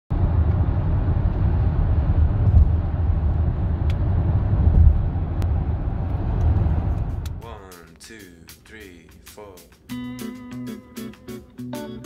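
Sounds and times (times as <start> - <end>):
road and engine rumble in car: 0.1 - 7.4.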